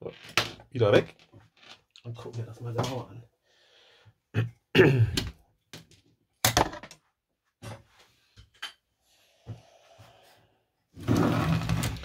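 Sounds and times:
scraping and rummaging: 11.0s - 12.0s.

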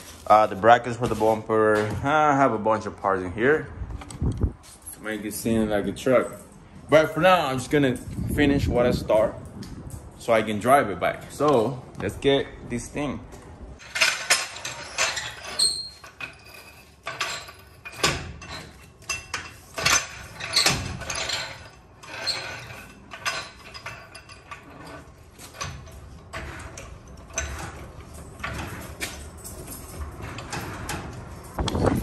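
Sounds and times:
floor jack clanking and rattling: 13.8s - 32.0s
jack rolling on concrete: 13.8s - 32.0s.

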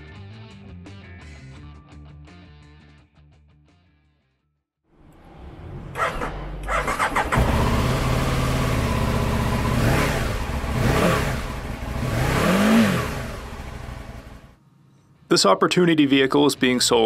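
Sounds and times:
motorcycle engine idling and revving: 5.0s - 14.6s.

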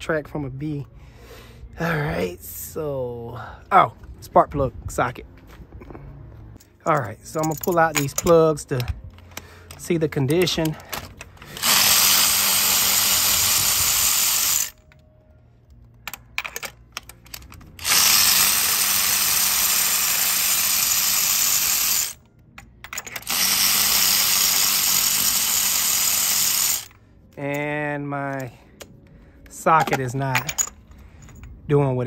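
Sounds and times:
electric ratchet running: 10.6s - 14.8s, 17.7s - 22.2s, 22.9s - 27.0s.

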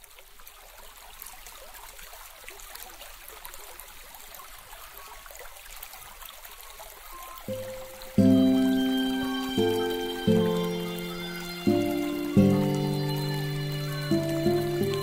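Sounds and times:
crackling hiss: 7.1s - 15.0s.

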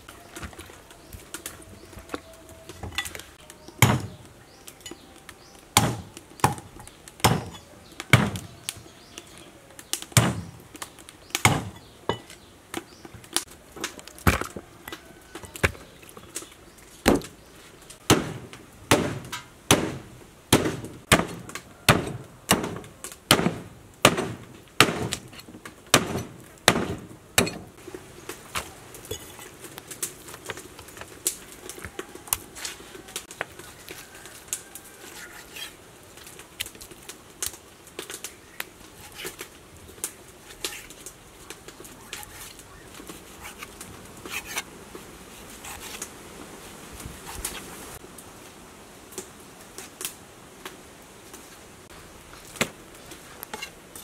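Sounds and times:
knife chopping through bone: 5.8s - 8.5s, 20.6s - 25.2s.

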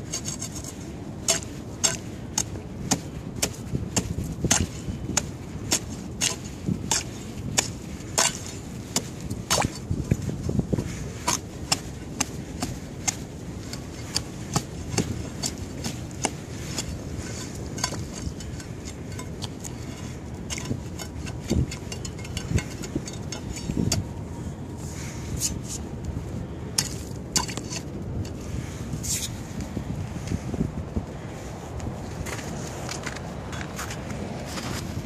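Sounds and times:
pole chipping ice: 1.3s - 9.9s, 11.2s - 24.0s.

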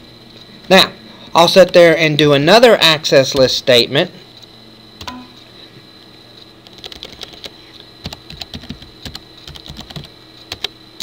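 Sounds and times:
typing on computer keyboard: 6.6s - 10.7s.

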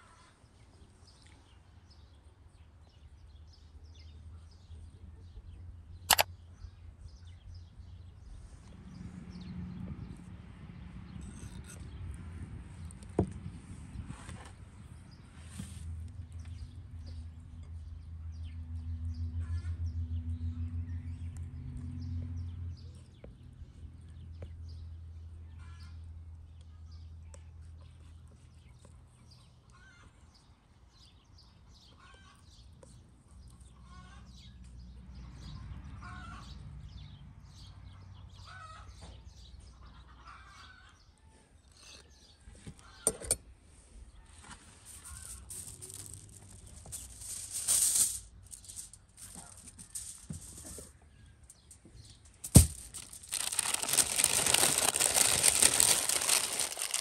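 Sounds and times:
aluminium foil crinkling: 44.8s - 50.9s, 51.8s - 57.0s
small birds chirping: 44.9s - 57.0s.

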